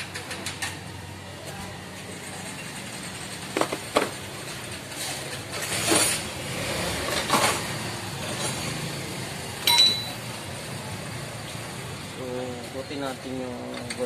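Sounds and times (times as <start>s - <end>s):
metal tools clinking on engine: 9.6s - 10.4s.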